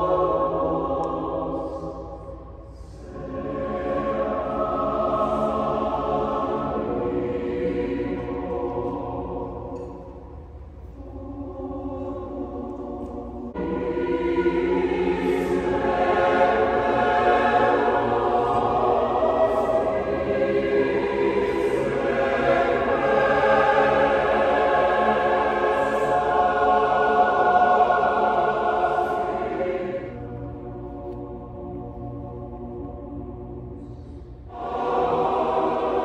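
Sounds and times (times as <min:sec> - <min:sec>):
choir singing a cappella: 0:00.0 - 0:36.0.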